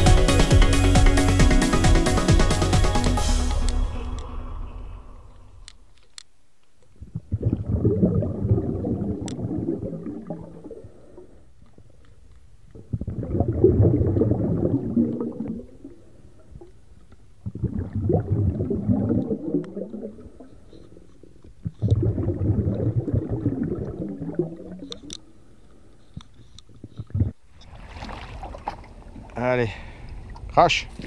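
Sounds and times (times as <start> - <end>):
muffled underwater rumbling: 7.0 - 11.5, 12.7 - 16.8, 17.4 - 21.0, 21.6 - 25.1.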